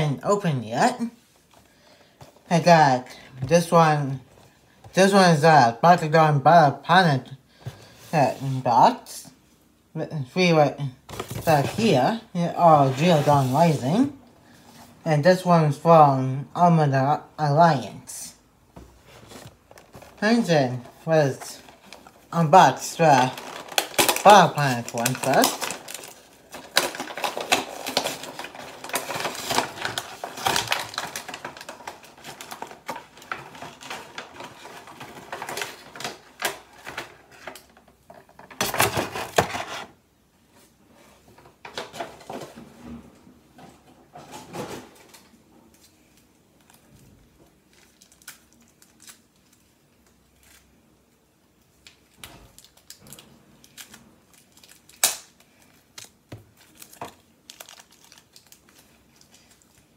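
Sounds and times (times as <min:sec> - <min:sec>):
toy packaging clicks and rustles: 0:19.6 - 0:39.9, 0:47.5 - 0:50.8, 0:51.6 - 0:59.9.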